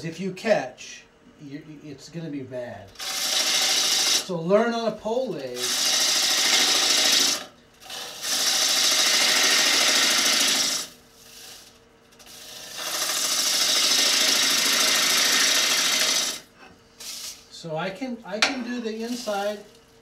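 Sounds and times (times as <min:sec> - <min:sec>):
gouge cutting wood on lathe: 0:03.0 - 0:04.3, 0:05.6 - 0:10.9, 0:12.2 - 0:16.5.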